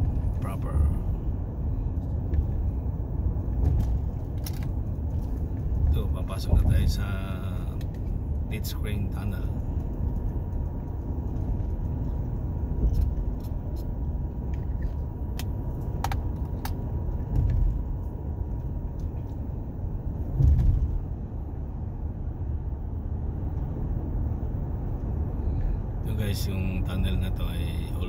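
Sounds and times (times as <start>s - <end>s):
car tyre and engine rumble: 0.0s - 28.0s.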